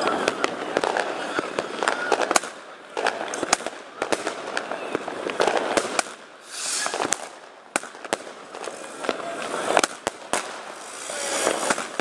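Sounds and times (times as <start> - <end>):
firework bangs: 0.0 - 12.0
firework crackling: 0.0 - 12.0
firework hissing rush: 5.0 - 12.0.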